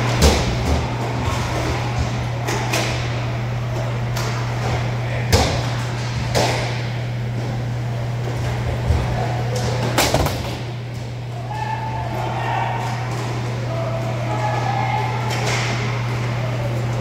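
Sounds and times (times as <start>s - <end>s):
hockey sticks and puck clacking: 4.1s - 6.9s, 14.6s - 16.3s.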